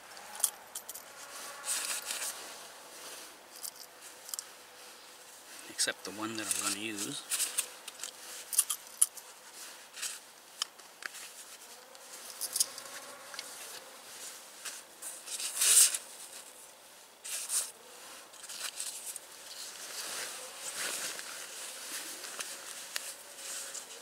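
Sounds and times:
clicks and rustles of matches handled: 0:06.2 - 0:09.3, 0:12.0 - 0:13.5, 0:17.2 - 0:19.9.

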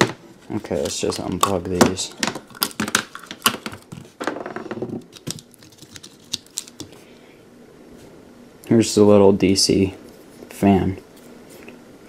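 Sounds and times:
plastic connectors clicking: 0:05.1 - 0:06.9.

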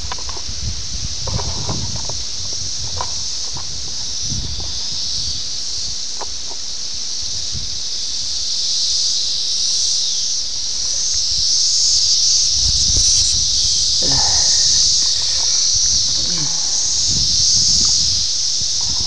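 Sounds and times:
cicadas droning: 0:00.0 - 0:19.0.

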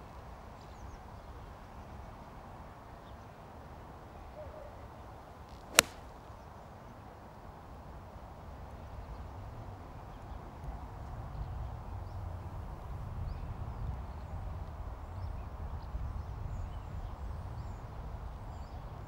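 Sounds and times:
golf club striking ball: 0:05.6 - 0:06.1.

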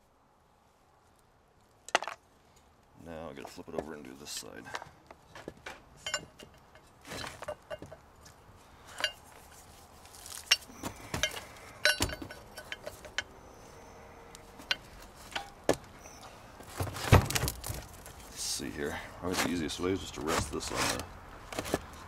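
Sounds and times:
metal clinks and knocks: 0:06.0 - 0:08.3, 0:08.9 - 0:09.5, 0:10.3 - 0:18.2.

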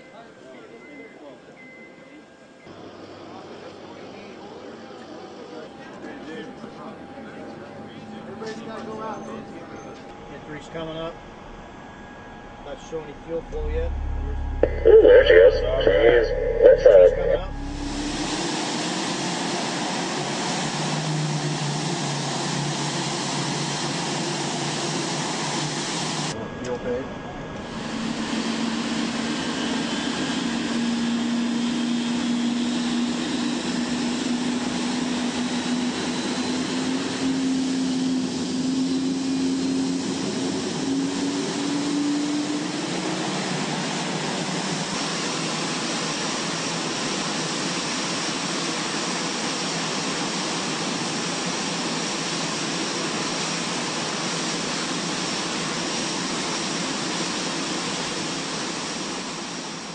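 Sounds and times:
jet engine spooling up: 0:11.2 - 0:26.5, 0:27.4 - 0:59.9.

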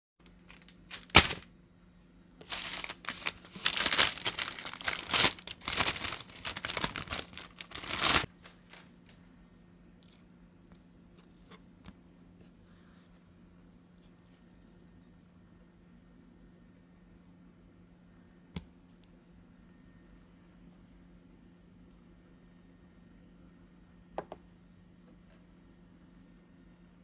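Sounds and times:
wrapping paper crinkling: 0:00.2 - 0:01.5, 0:02.4 - 0:09.1.

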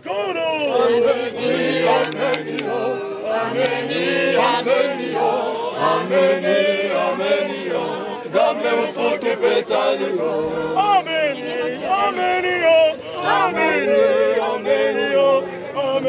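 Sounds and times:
group singing a hymn: 0:00.1 - 0:16.0.

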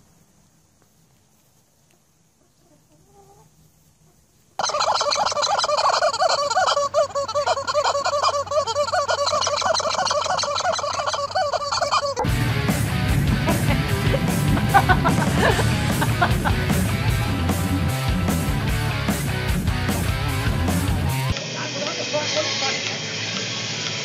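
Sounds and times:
rubber chicken toy squawking: 0:04.6 - 0:12.3
music: 0:12.2 - 0:24.0.

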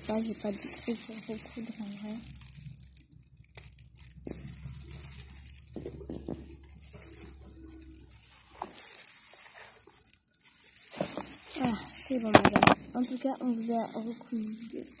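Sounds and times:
gloved hands handling plastic toy: 0:03.5 - 0:15.0.

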